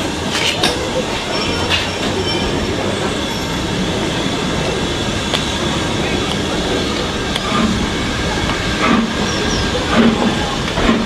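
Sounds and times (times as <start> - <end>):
hissing steam: 0.0 - 11.0
train wheels rumbling on rails: 0.0 - 11.0
high wheel squeal: 1.0 - 5.7, 6.7 - 10.6.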